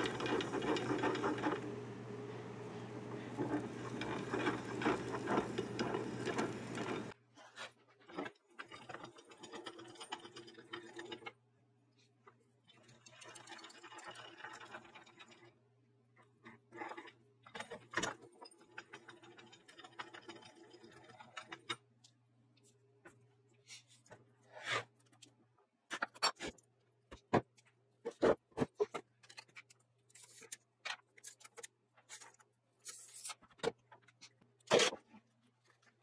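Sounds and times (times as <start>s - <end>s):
mechanism clicking and rattling: 0.0s - 1.8s, 3.3s - 7.2s
loud mechanical noise: 0.0s - 7.1s.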